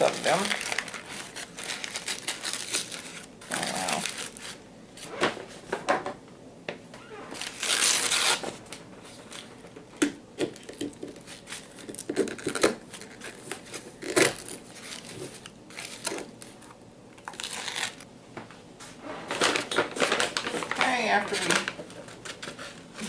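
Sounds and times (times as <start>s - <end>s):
paper filters crinkling: 0.0s - 4.6s, 7.3s - 18.0s, 19.2s - 23.0s.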